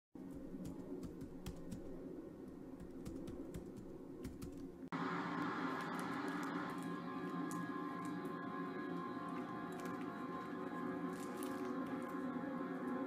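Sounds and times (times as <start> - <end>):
laptop keyboard typing: 0.2 - 4.8
low room hum: 0.2 - 13.0
music: 4.8 - 13.0.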